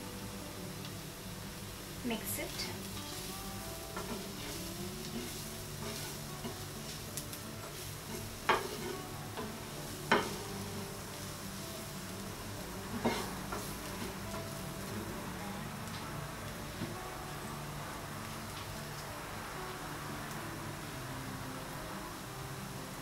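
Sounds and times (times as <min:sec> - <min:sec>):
vegetables sizzling in oil: 0:00.0 - 0:23.0
wooden spatula scraping pan: 0:03.1 - 0:07.0, 0:07.6 - 0:10.4, 0:12.9 - 0:14.6.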